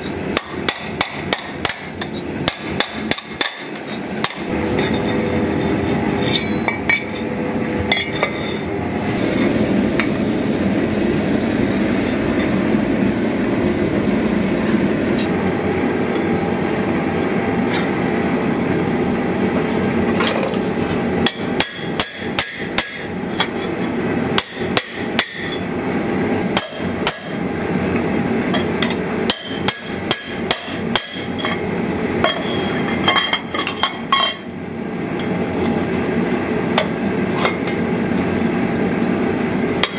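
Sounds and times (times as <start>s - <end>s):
hammer striking metal on anvil: 0.4s - 7.3s, 7.9s - 8.6s, 21.2s - 23.1s, 24.4s - 25.6s, 26.6s - 27.4s, 28.6s - 31.6s.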